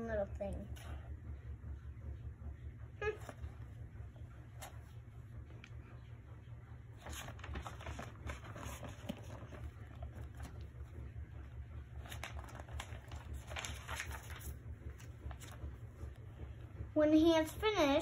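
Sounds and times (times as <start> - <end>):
steady low hum: 0.0 - 18.0
paper pages rustling: 7.0 - 11.2, 11.9 - 16.2.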